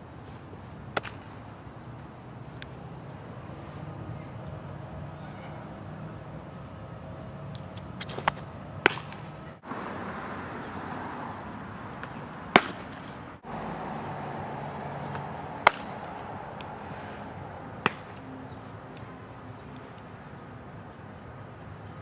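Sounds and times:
outdoor background noise: 0.0s - 22.0s
balls smacking into leather mitt: 0.9s - 1.2s, 8.0s - 9.3s, 12.0s - 13.2s, 15.1s - 16.8s, 17.8s - 18.2s.

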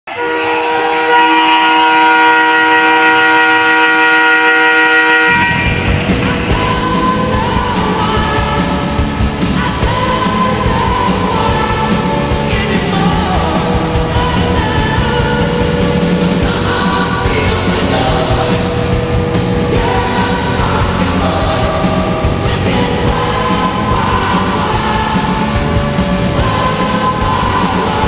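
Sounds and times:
arena goal horn: 0.1s - 5.9s
loud music with a beat: 5.3s - 28.0s.

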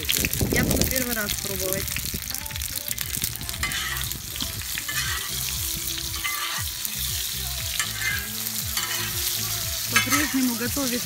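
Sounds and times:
dumplings sizzling in pan: 0.0s - 11.0s
metal ladle scraping pan: 3.6s - 7.0s, 7.8s - 10.7s.

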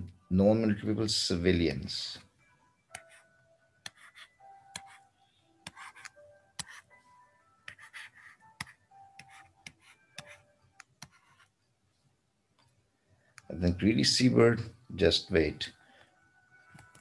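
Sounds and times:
stylus tapping and scratching: 2.9s - 6.9s, 7.6s - 11.7s.

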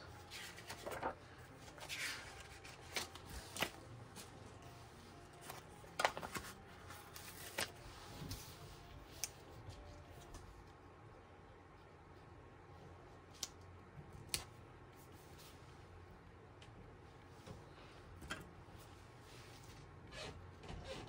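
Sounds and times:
paper stickers rustling: 0.2s - 10.5s.

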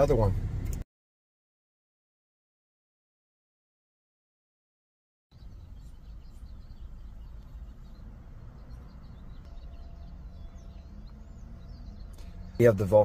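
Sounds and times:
faint birds chirping: 5.3s - 13.0s
steady low rumble: 5.4s - 12.4s.

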